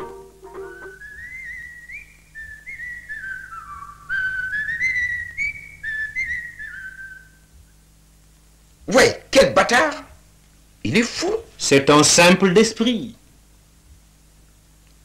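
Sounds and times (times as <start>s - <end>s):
person whistling a slow tune: 0.5s - 7.4s.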